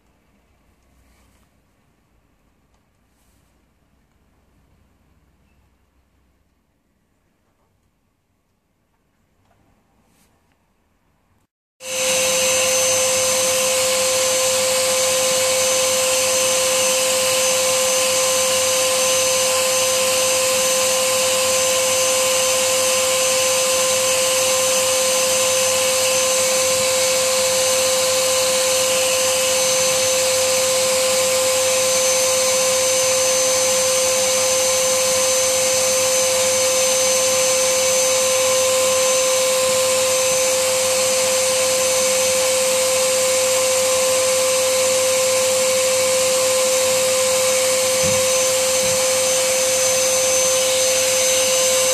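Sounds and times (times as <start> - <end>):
vacuum cleaner running: 11.8 - 51.9.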